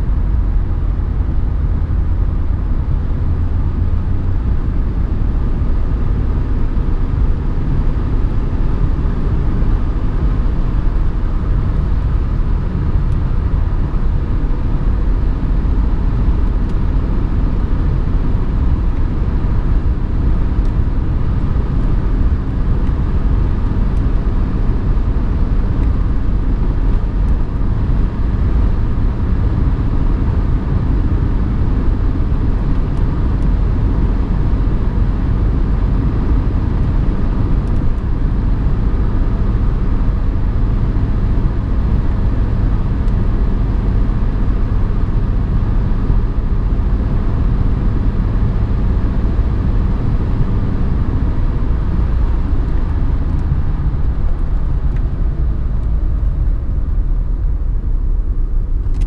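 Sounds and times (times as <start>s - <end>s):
diesel engine running: 0.0s - 59.0s
tyre and road noise: 0.0s - 59.0s.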